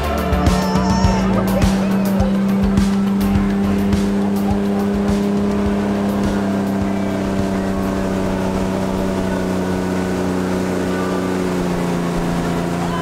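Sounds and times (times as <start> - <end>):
motorboat engine humming: 0.0 - 13.0.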